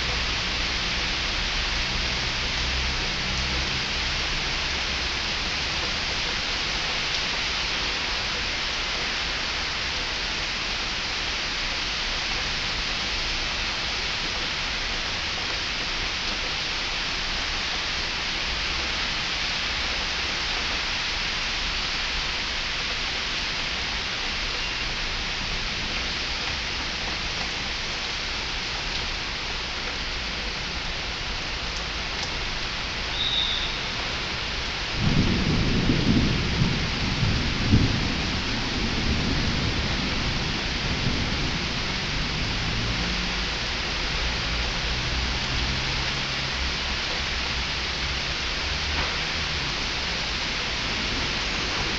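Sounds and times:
heavy rain hissing: 0.0s - 51.9s
thunder rumbling: 34.6s - 43.2s.

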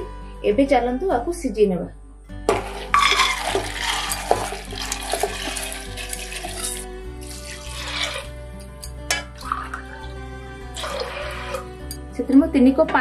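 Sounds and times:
background music: 0.0s - 13.0s
beans and water pouring: 2.5s - 8.3s, 9.3s - 11.7s
water pouring from a tumbler: 2.5s - 8.3s, 9.4s - 10.1s, 10.8s - 11.6s
water splashing: 2.5s - 8.3s, 10.8s - 11.6s.

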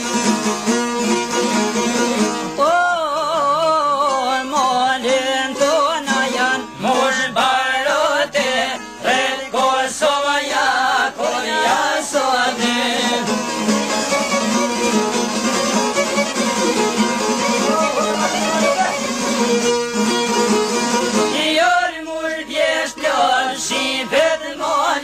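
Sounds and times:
ornamented melody line: 0.0s - 7.1s, 10.8s - 21.8s
plucked string instrument: 0.0s - 25.0s.

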